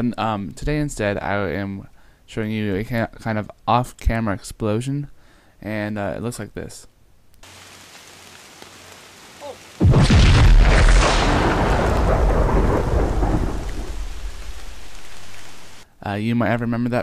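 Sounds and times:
explosion blast with deep rumble: 9.8 - 15.4.

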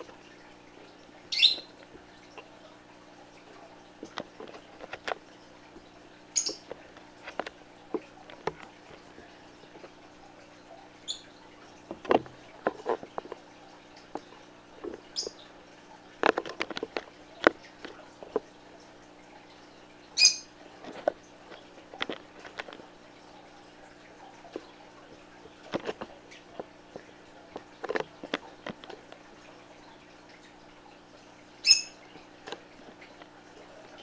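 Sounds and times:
budgerigars chirping: 1.3 - 1.7, 6.4 - 6.6.

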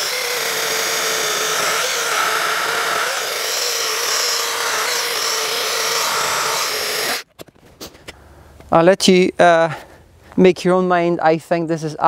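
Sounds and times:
chainsaw cutting log: 0.0 - 7.3.

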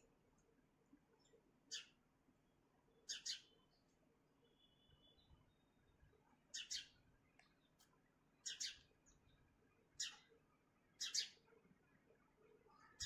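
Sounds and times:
sparrow chirping: 1.2 - 2.0, 3.0 - 3.8, 6.5 - 7.0, 8.4 - 9.4, 10.0 - 10.3, 10.9 - 11.4.

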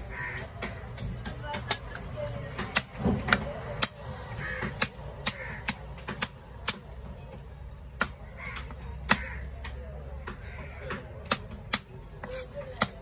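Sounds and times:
crows cawing: 0.0 - 1.0, 4.2 - 6.3, 8.3 - 11.5
knife chopping fish on wooden block: 0.6 - 7.0, 7.9 - 13.0.

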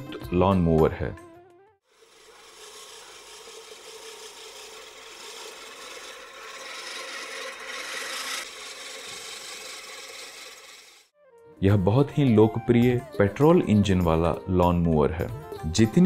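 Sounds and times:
reel lawn mower whirring: 1.9 - 11.1.

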